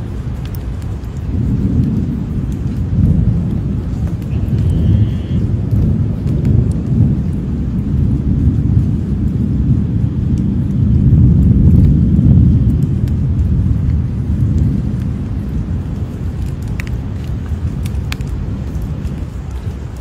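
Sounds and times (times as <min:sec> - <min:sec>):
crocodile low rumble: 0:01.3 - 0:16.1.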